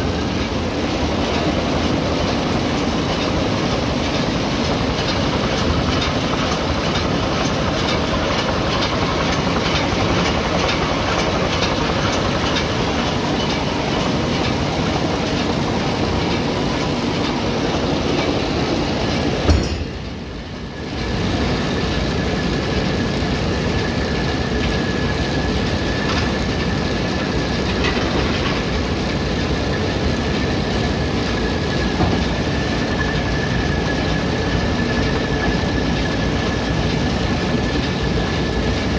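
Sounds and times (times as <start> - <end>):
baler mechanical din: 19.1 - 20.3
knock: 19.5 - 19.9.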